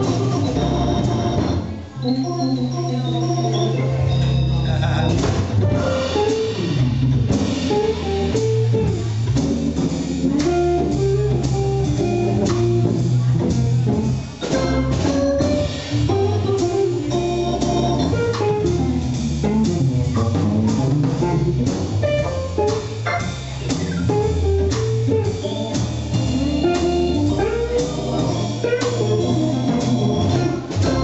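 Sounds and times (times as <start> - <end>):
drum kit: 0.0 - 31.0
guitar: 0.0 - 31.0
organ: 0.0 - 31.0
low bass note: 4.0 - 9.5.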